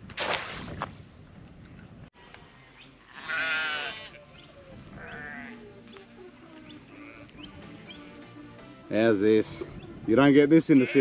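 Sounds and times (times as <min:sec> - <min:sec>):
sheep bleating: 0:03.0 - 0:04.3, 0:04.9 - 0:05.7, 0:06.5 - 0:07.5, 0:10.7 - 0:11.0.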